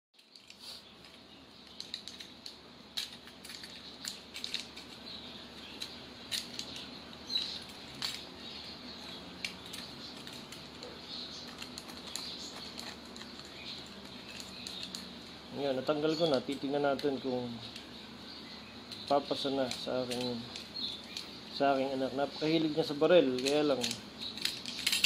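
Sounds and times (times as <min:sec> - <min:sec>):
plastic and metal clicks and scrapes: 0:00.2 - 0:05.0, 0:09.0 - 0:15.1, 0:23.3 - 0:25.0.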